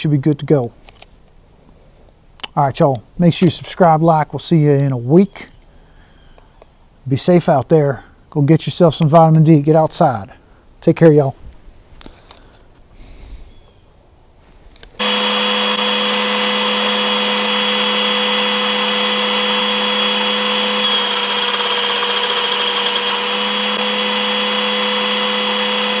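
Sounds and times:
belt sander running: 15.0 - 26.0.

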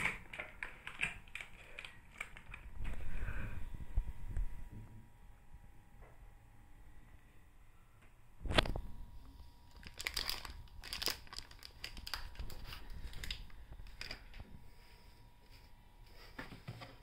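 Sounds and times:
plastic pouches crinkling: 0.0 - 3.0, 9.7 - 14.4.

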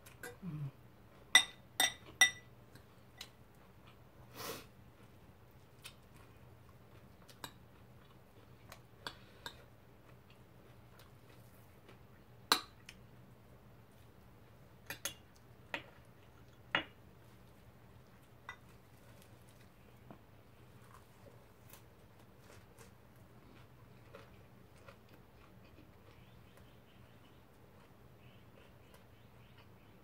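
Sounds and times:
faint low hum: 0.0 - 30.0
spoon clinking against glass bowl: 1.3 - 2.5.

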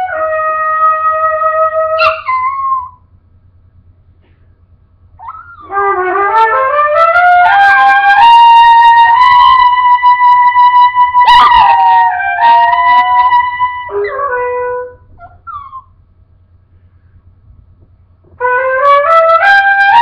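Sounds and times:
trumpet playing: 0.0 - 2.8, 5.6 - 15.4, 18.3 - 20.0
puppy howling: 0.6 - 3.0, 5.2 - 5.9, 7.4 - 16.0.

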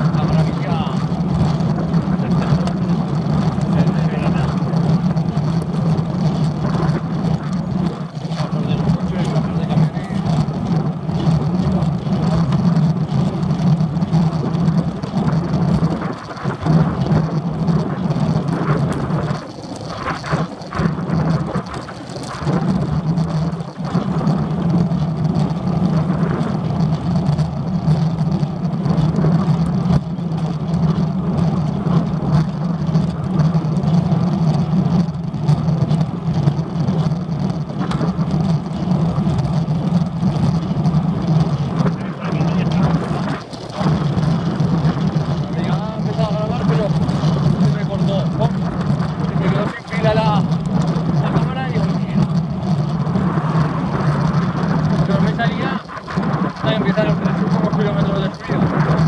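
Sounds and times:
wind buffeting microphone: 0.0 - 59.0.

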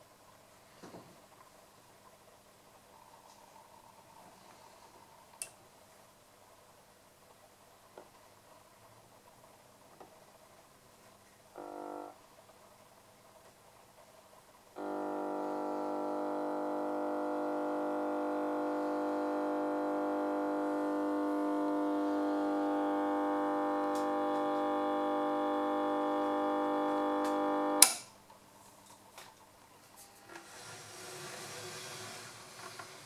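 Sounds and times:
sharp loud click: 27.8 - 28.1.

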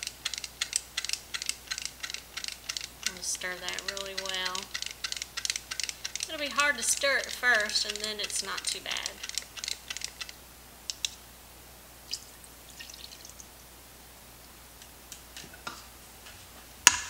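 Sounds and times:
utensil clicking in plastic cup: 0.2 - 11.2.

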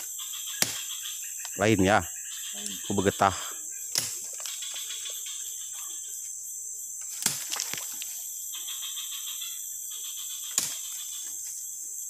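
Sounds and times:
forest insects droning: 0.0 - 12.0
machete chopping vine: 0.6 - 0.9, 3.9 - 4.2, 7.1 - 7.8, 10.6 - 10.8.

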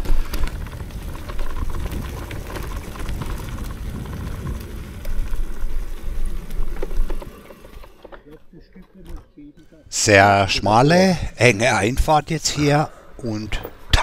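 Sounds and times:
wind rumble on microphone: 0.0 - 7.3
tyres crunching over dirt and leaves: 0.0 - 9.8
bike rattling: 0.0 - 14.0.

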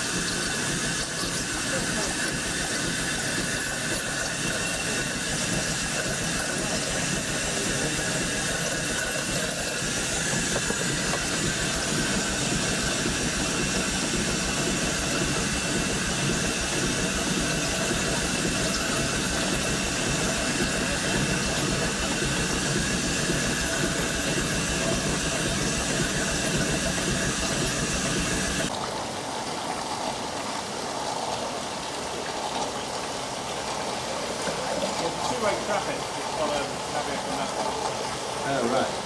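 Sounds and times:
steam engine whirring: 0.0 - 28.7, 33.7 - 39.0
thin steady whine: 0.0 - 28.7.

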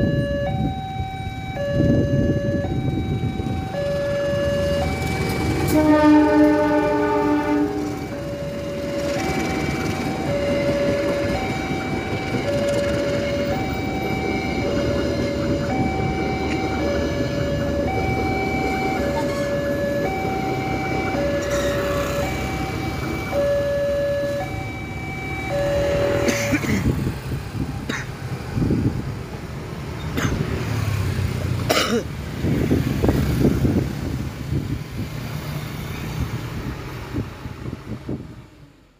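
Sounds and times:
two-tone crossing alarm chime: 0.0 - 5.7, 7.9 - 26.5
train coaches rumbling past: 0.0 - 38.9
motorcycles and truck passing: 0.1 - 38.9.

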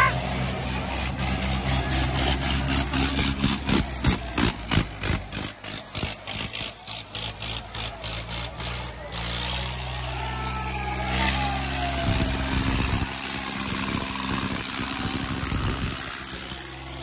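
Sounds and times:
tractor diesel engine labouring: 0.0 - 17.0
quick ticking: 1.0 - 9.4.

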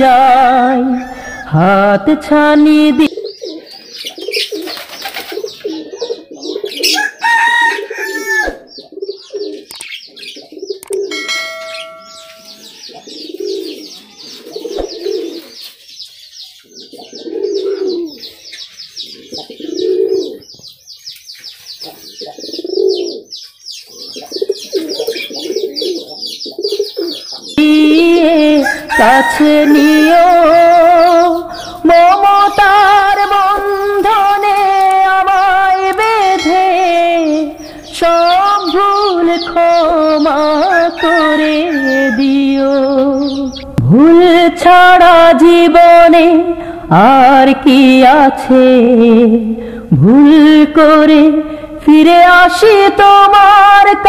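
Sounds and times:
birds chattering: 0.0 - 48.0
pigeons cooing: 3.0 - 31.9, 32.5 - 35.8, 39.4 - 43.8
other bird calls: 3.0 - 43.8.

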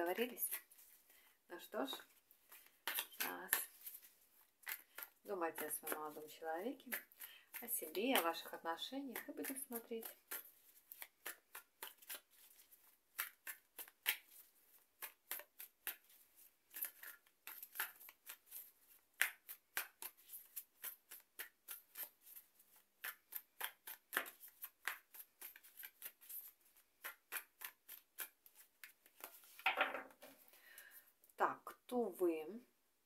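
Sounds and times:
cards being shuffled: 9.4 - 30.5.

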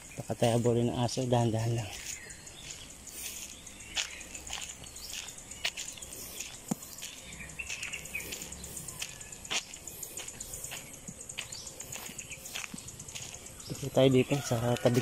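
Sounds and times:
birds chirping: 0.0 - 15.0
insect buzz: 0.0 - 15.0
sharp taps and clicks: 5.7 - 7.9.

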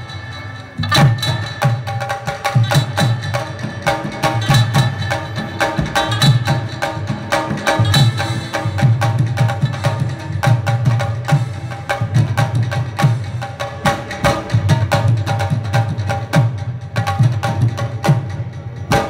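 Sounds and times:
dhol drumming: 0.0 - 19.0
rubab melody: 0.0 - 19.0.

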